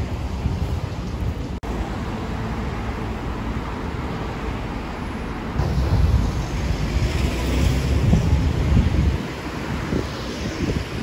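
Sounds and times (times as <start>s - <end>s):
wind buffeting microphone: 0.0s - 1.6s, 5.1s - 11.0s
road traffic rumble: 0.0s - 11.0s.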